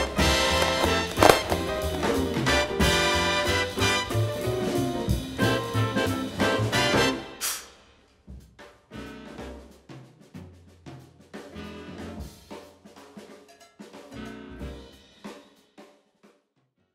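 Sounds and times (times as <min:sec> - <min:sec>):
bass notes: 0:00.0 - 0:07.2, 0:09.0 - 0:09.8
drum-kit beat: 0:00.0 - 0:16.0.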